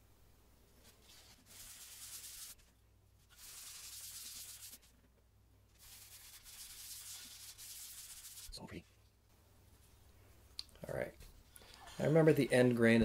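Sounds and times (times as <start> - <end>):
paper towel rubbing on wood: 0.8 - 4.9, 5.7 - 8.6.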